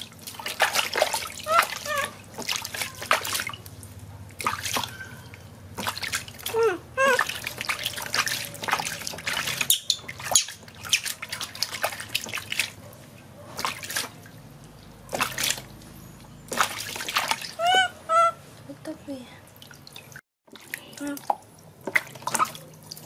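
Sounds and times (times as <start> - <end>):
water splashing in plastic tub: 0.0 - 18.0, 19.5 - 23.0
baby monkey high calls: 1.4 - 2.2, 6.5 - 7.4, 17.5 - 18.4.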